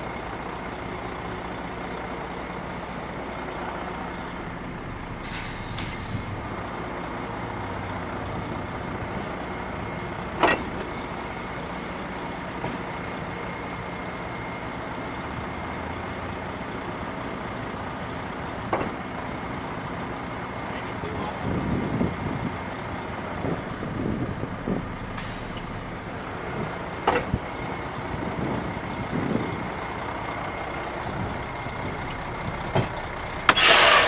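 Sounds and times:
diesel truck engine running: 0:00.0 - 0:34.0
short hiss of air: 0:05.2 - 0:06.4, 0:33.5 - 0:34.0.

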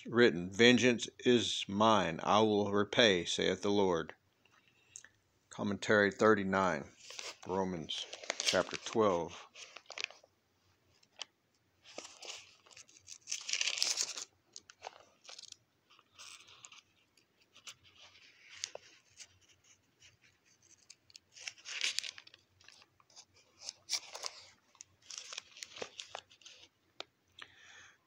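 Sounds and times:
paper crackles: 0:07.0 - 0:10.3, 0:11.0 - 0:26.7
thin pages rustling: 0:07.0 - 0:10.3, 0:10.9 - 0:26.8.

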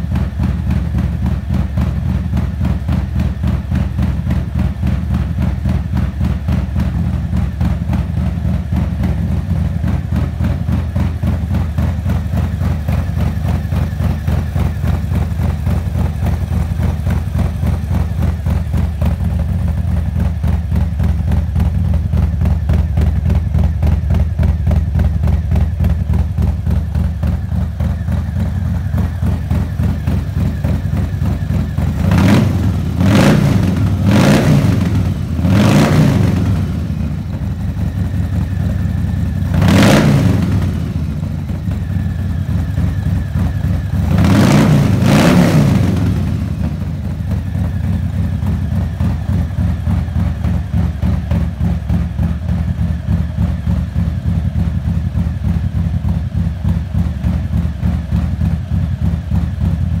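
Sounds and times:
motorcycle engine idling: 0:00.0 - 1:00.0
motorcycle engine revving: 0:00.0 - 1:00.0.

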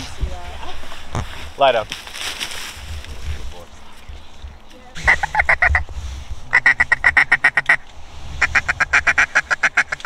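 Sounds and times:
duck call rapid quacks: 0:05.0 - 0:05.8, 0:06.5 - 0:07.8, 0:08.4 - 0:10.0.

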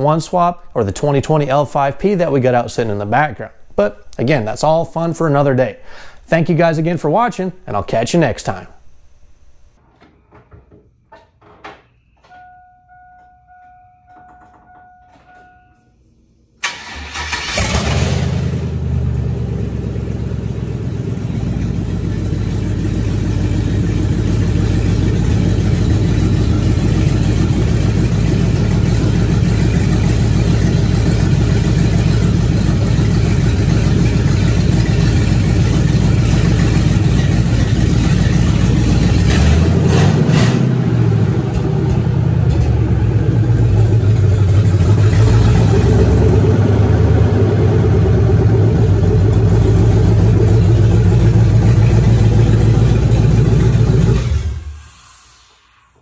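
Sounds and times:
engine idling: 0:16.6 - 0:55.0.

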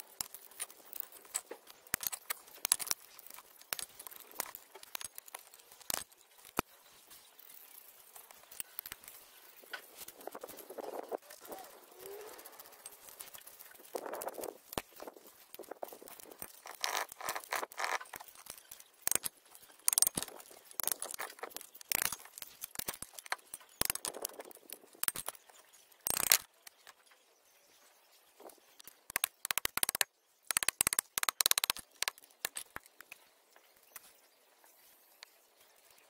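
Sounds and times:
metal parts clinking and scraping: 0:16.2 - 0:25.3
quick runs of clicks: 0:28.8 - 0:33.2.

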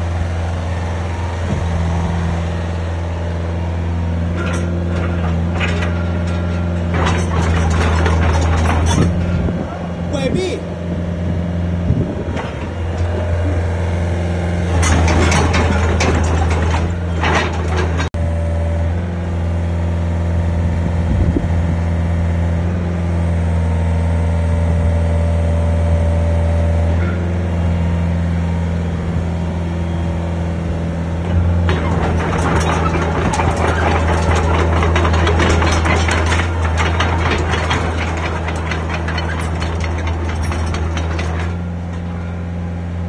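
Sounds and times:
excavator diesel engine running: 0:00.0 - 0:43.0
rattling: 0:04.3 - 0:10.4, 0:14.7 - 0:18.2, 0:31.2 - 0:42.3.

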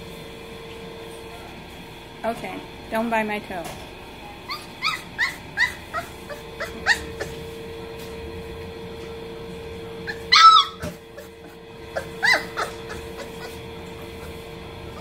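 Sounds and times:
puppy yelp: 0:04.5 - 0:07.4, 0:10.0 - 0:14.3
puppies yipping and whimpering: 0:04.5 - 0:07.6, 0:10.0 - 0:15.0.

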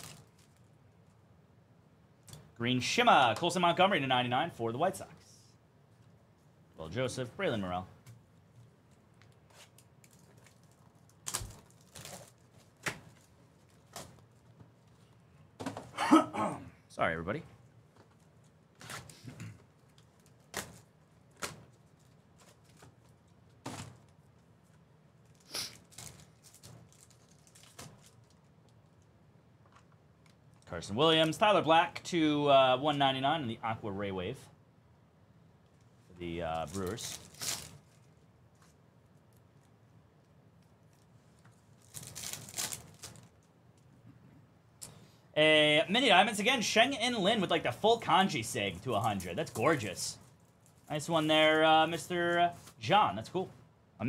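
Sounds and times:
foil wrapper ripping open: 0:00.0 - 0:00.7, 0:09.6 - 0:14.3, 0:25.2 - 0:28.5, 0:36.5 - 0:38.2, 0:41.7 - 0:43.4
cardboard and wrappers rustling: 0:08.9 - 0:15.0, 0:17.9 - 0:28.5, 0:36.5 - 0:39.7, 0:40.8 - 0:43.5.

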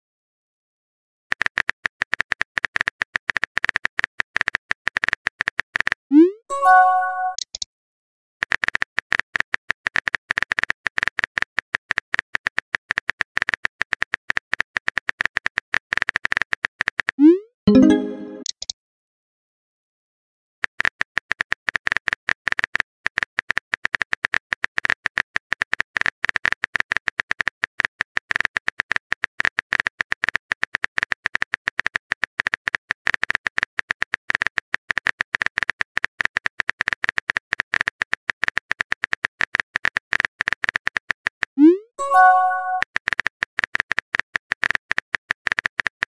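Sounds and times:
rapid keyboard clicks: 0:01.3 - 0:06.0, 0:08.4 - 0:17.2, 0:20.6 - 0:41.5, 0:42.9 - 0:46.0.

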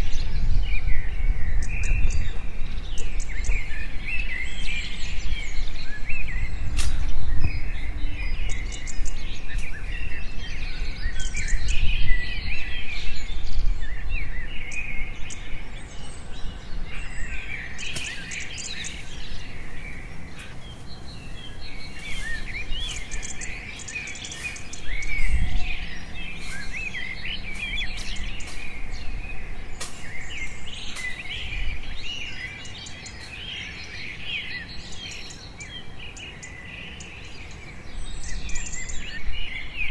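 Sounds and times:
small birds chirping: 0:00.0 - 0:39.9
rustling in undergrowth: 0:02.4 - 0:12.3, 0:17.4 - 0:35.6
footsteps knocking in undergrowth: 0:03.0 - 0:11.6, 0:17.8 - 0:34.4.

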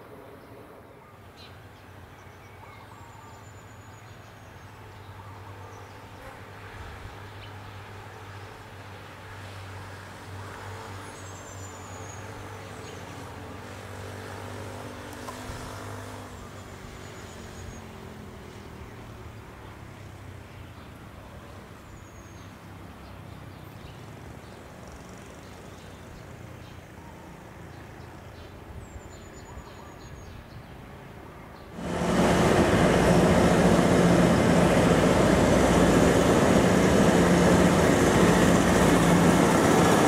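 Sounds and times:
engine droning: 0:31.8 - 0:40.0.

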